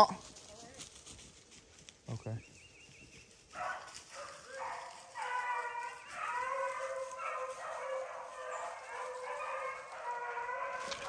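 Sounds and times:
hounds baying: 0:03.4 - 0:11.0.

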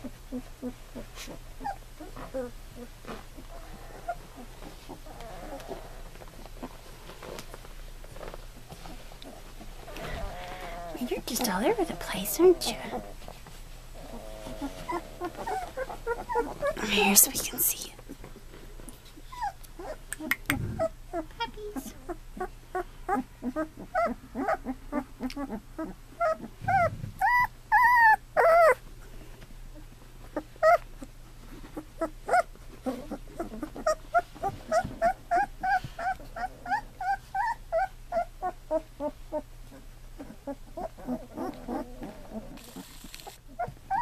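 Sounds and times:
puppies whimpering and squeaking: 0:00.0 - 0:18.5, 0:19.1 - 0:28.9, 0:29.7 - 0:44.0
puppy crying loudly: 0:14.4 - 0:16.8, 0:23.1 - 0:28.8, 0:32.0 - 0:39.4, 0:43.5 - 0:44.0.

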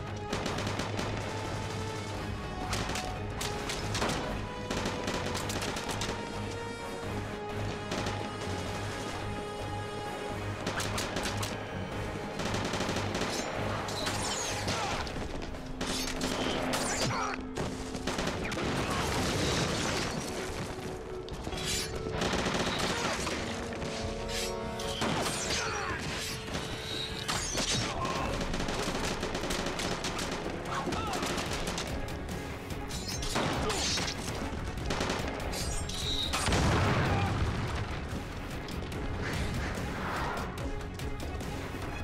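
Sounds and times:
background music: 0:00.0 - 0:42.0
rifle gunfire and blasts: 0:00.1 - 0:06.4, 0:07.7 - 0:09.0, 0:12.2 - 0:13.9, 0:17.6 - 0:20.6, 0:22.0 - 0:23.9, 0:27.6 - 0:32.1, 0:33.3 - 0:38.2.

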